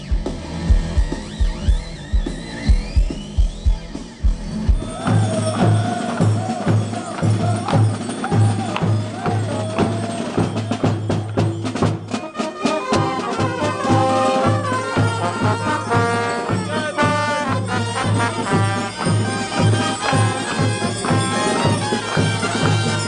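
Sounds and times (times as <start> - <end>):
rock band with electric guitar: 0.0 - 5.2
brass bass line: 0.0 - 6.6, 12.6 - 23.0
sharp percussion strokes: 0.0 - 23.0
trumpet notes: 12.1 - 23.0.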